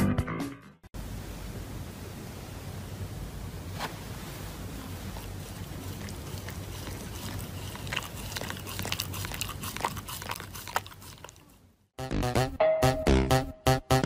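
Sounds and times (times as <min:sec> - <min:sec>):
low steady hiss: 0:01.0 - 0:06.7
dog chewing paper mask: 0:04.9 - 0:11.6.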